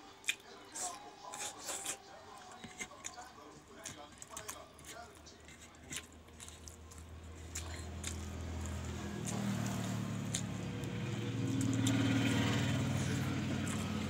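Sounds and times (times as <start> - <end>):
vehicle engine running: 7.1 - 14.0.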